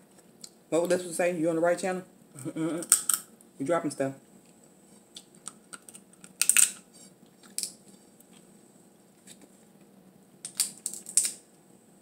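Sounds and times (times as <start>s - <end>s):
crab shell cracking: 2.8s - 3.3s, 5.1s - 6.8s, 7.4s - 7.8s, 10.4s - 11.4s.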